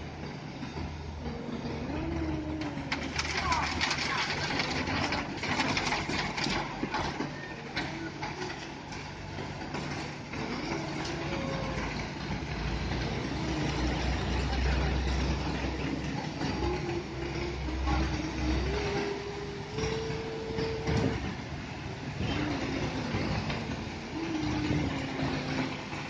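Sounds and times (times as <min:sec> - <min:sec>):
truck diesel engine running: 0:00.0 - 0:26.0
concrete pouring down chute: 0:03.0 - 0:15.8.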